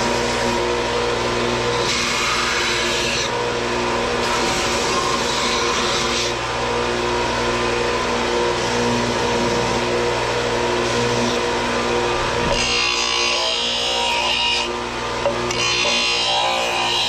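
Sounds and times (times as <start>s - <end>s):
sander running: 0.0s - 17.0s.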